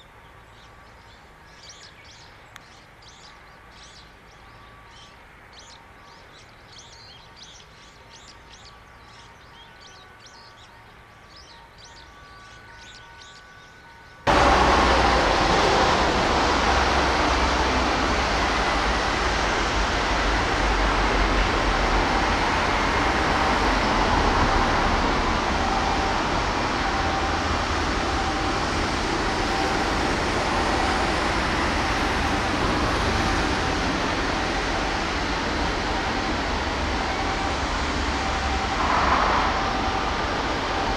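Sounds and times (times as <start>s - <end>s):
deep rumble: 37.8s - 40.9s.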